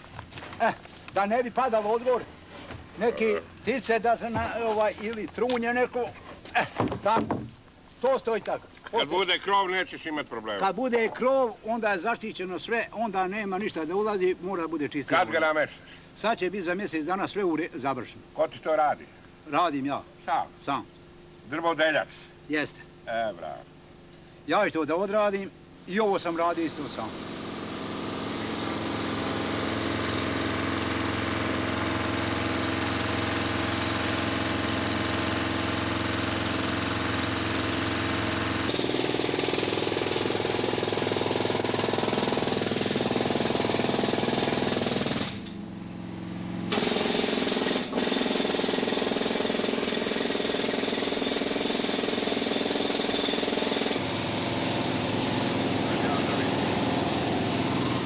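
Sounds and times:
jackhammer digging stone: 26.3s - 45.5s, 46.7s - 58.0s
air compressor engine running: 26.3s - 58.0s.

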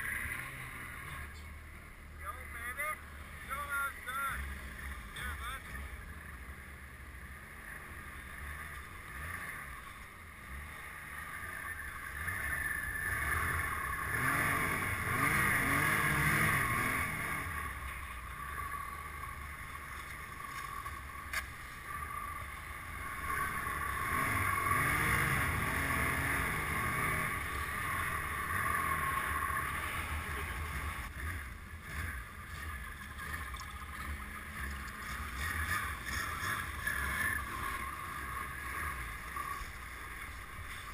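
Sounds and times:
snowmobile engine revving: 0.0s - 40.9s.

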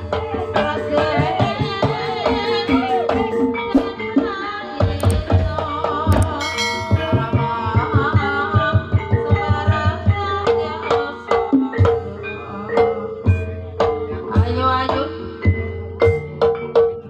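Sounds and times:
hand drums beating: 0.0s - 12.2s
metallic gamelan tones: 0.0s - 17.0s.

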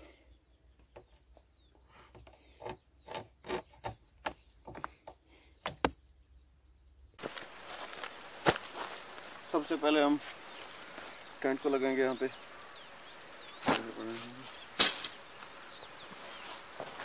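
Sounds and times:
cord rubbing and tapping on metal: 0.8s - 5.9s
outdoor hiss: 7.2s - 17.0s.

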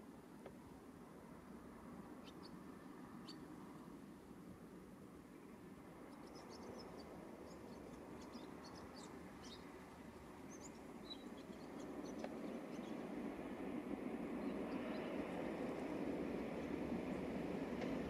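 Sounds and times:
train rumble: 4.3s - 18.0s
small birds chirping: 6.1s - 9.8s, 10.4s - 13.2s.

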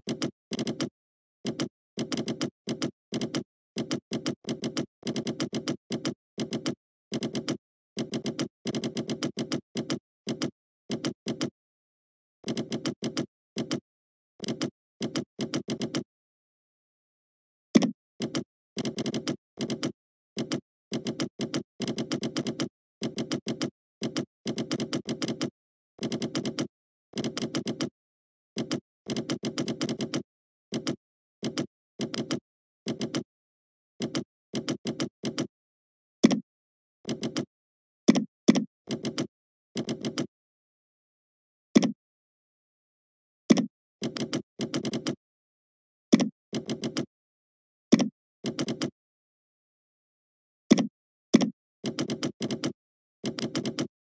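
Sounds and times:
computer keyboard typing: 0.0s - 11.6s, 12.4s - 13.8s, 14.4s - 16.1s, 17.8s - 28.0s, 28.6s - 33.3s, 34.0s - 35.5s, 37.1s - 37.5s, 38.1s - 40.3s, 43.5s - 45.2s, 46.1s - 47.1s, 47.9s - 49.0s, 50.7s - 54.0s.

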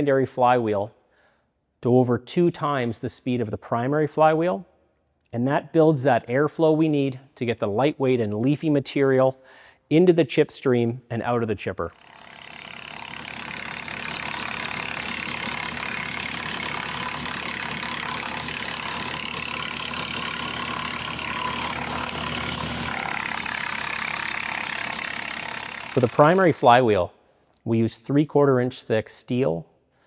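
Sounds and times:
wood chipper chipping branches: 12.0s - 26.8s
tractor engine hum: 12.2s - 26.5s.

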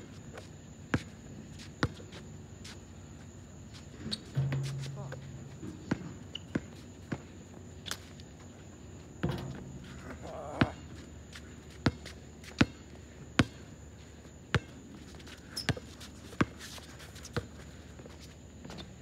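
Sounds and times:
ball clanking on metal rim: 4.1s - 6.6s, 9.2s - 10.3s
basketball bouncing on asphalt: 4.1s - 7.3s, 9.2s - 12.8s.

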